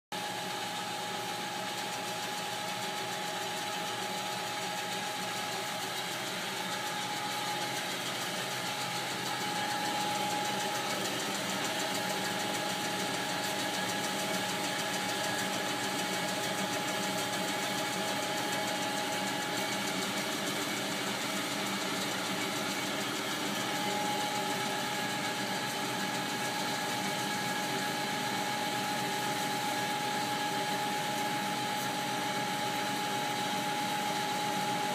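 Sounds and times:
band saw running: 0:04.0 - 0:27.9.

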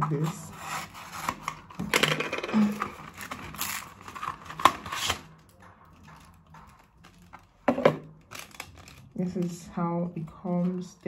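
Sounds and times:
plastic packaging crinkling: 0:08.2 - 0:09.2.

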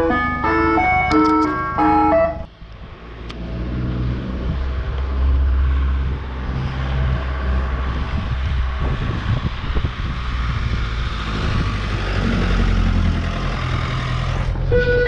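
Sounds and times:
ice cream van chimes: 0:00.0 - 0:02.5
strong wind rumbling on microphone: 0:04.1 - 0:12.9.

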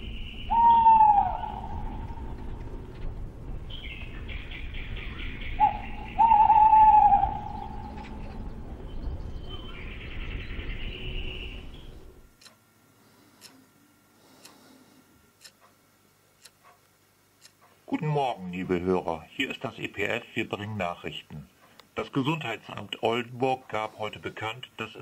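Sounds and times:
owl hooting: 0:00.0 - 0:02.5, 0:03.7 - 0:08.3
rapid high trilling calls: 0:03.7 - 0:08.2
clock ticking faintly: 0:16.4 - 0:17.9.

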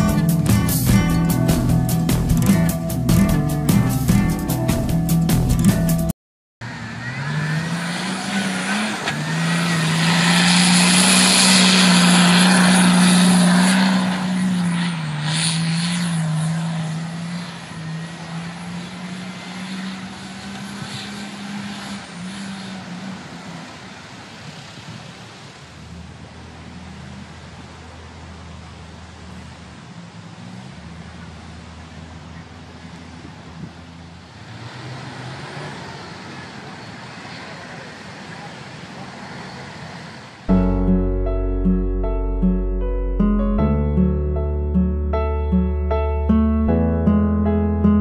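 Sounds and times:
off-road vehicle engine revving: 0:00.0 - 0:41.1.

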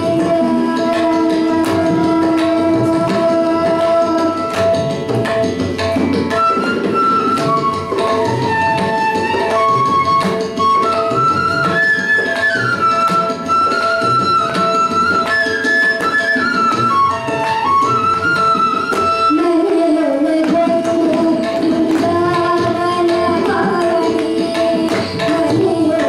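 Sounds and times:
tabla strokes: 0:00.0 - 0:26.0
bamboo flute melody: 0:06.2 - 0:20.0
child singing: 0:19.3 - 0:26.0.

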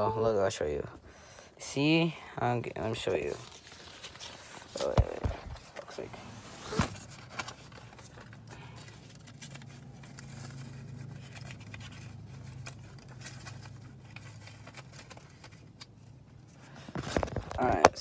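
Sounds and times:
low steady hum: 0:00.0 - 0:18.0
faint clicks and rustles: 0:06.9 - 0:18.0.

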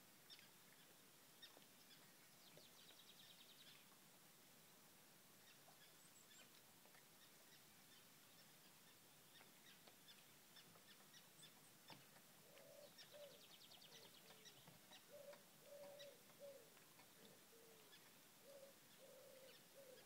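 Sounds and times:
low hooting bird calls: 0:12.4 - 0:20.0.

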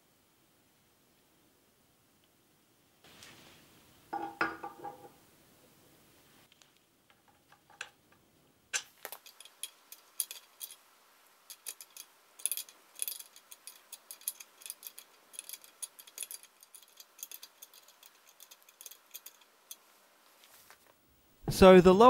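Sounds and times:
spanner clinking on bolts: 0:08.8 - 0:19.9.

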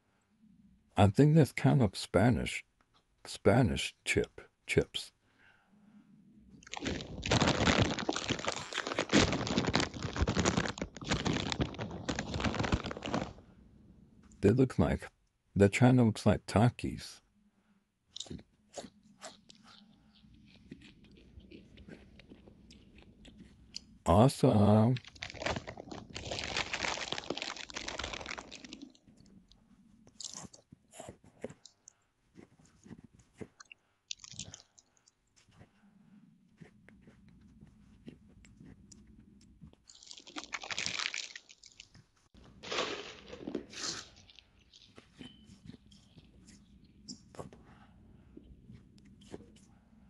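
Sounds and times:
chewing and crunching chips: 0:06.5 - 0:13.4, 0:18.1 - 0:35.9, 0:36.6 - 0:47.5
foil chip bag crinkling: 0:06.6 - 0:13.4, 0:24.6 - 0:29.0, 0:39.9 - 0:45.1.

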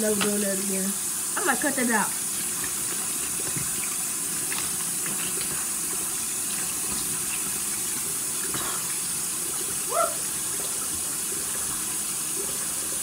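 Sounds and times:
tap water pouring into sink: 0:00.0 - 0:13.0.

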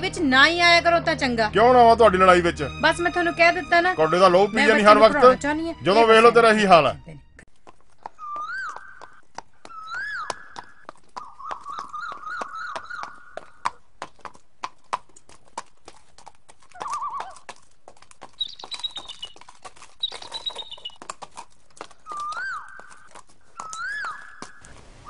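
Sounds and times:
hooves clopping on dirt: 0:00.0 - 0:25.0
horse whinnying: 0:08.1 - 0:13.8, 0:16.7 - 0:17.5, 0:18.4 - 0:24.7.

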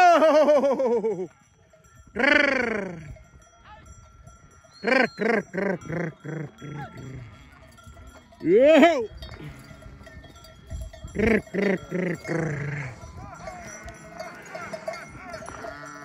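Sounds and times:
sheep bells ringing: 0:00.0 - 0:16.0
sheep bleating: 0:11.2 - 0:16.0.

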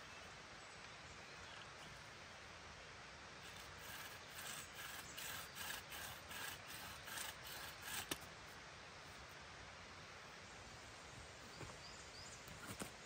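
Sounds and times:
rhythmic rasping strokes: 0:03.4 - 0:08.2.

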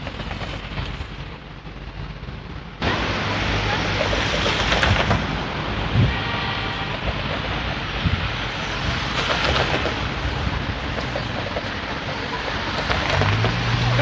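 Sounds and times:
tram rolling: 0:00.0 - 0:14.0
wind rumble on microphone: 0:00.0 - 0:14.0.

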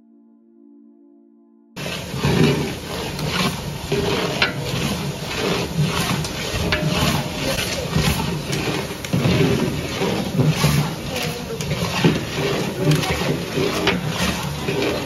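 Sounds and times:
metal ladle scraping cooking pot: 0:01.8 - 0:15.0.

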